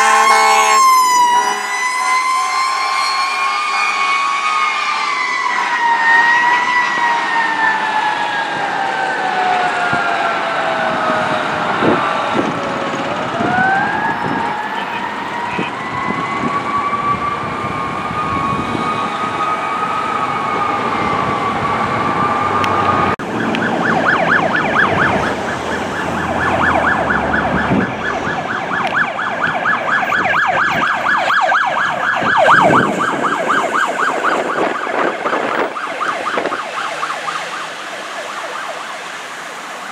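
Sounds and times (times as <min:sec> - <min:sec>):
electronic siren yelping: 0:00.0 - 0:39.2
siren wailing: 0:00.0 - 0:39.9.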